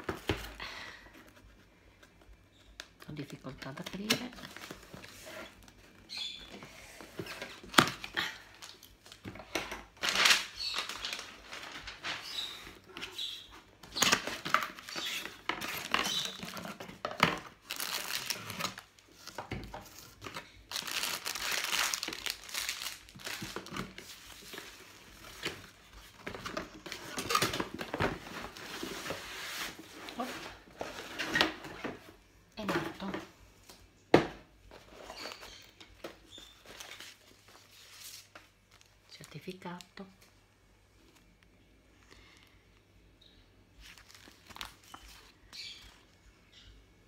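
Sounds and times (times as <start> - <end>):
packaging crinkling and rustling: 7.0 - 32.0, 43.8 - 46.1.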